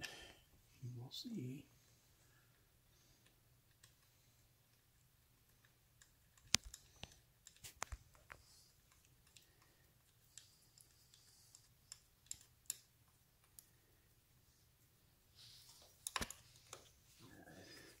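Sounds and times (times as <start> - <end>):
small metal parts clicking: 10.3 - 13.7.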